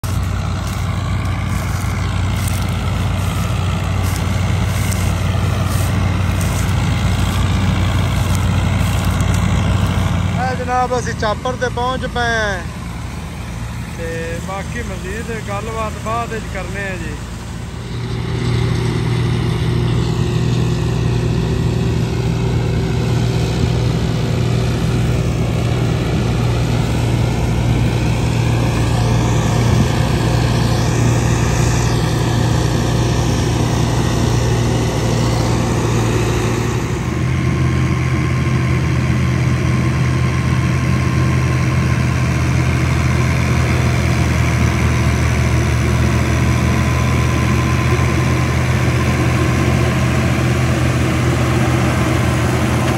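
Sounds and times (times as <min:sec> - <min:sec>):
diesel tractor engine under load: 0:00.0 - 0:52.9.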